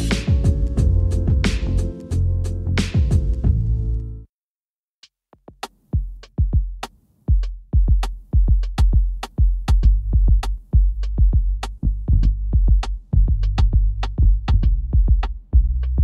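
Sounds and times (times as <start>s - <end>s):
lo-fi hip hop beat: 0.0s - 4.2s, 7.4s - 16.0s.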